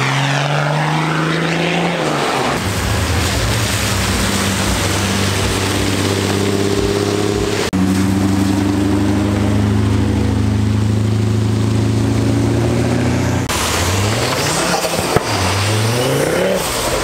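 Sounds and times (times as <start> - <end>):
engine accelerating: 0.0 - 17.0
car engine running: 2.6 - 16.0.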